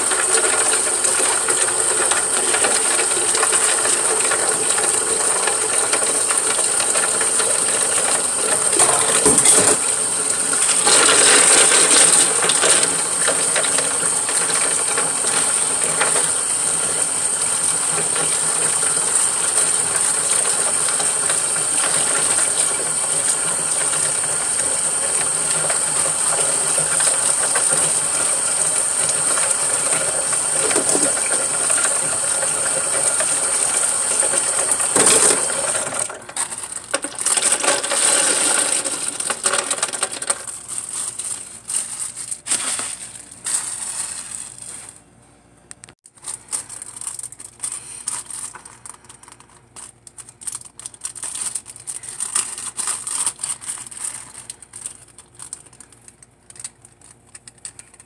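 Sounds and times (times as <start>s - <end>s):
tap water running into sink: 0.0s - 40.5s.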